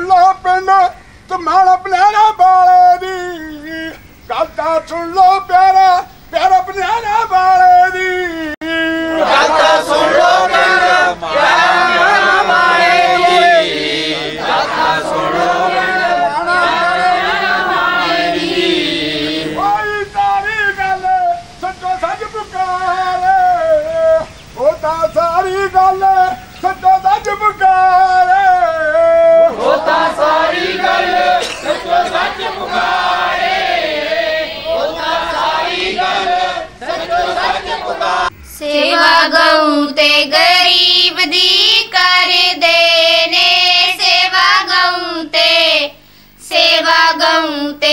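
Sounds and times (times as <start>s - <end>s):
voices singing in chorus: 2.0s - 47.9s
group chanting devotional song: 2.6s - 47.9s.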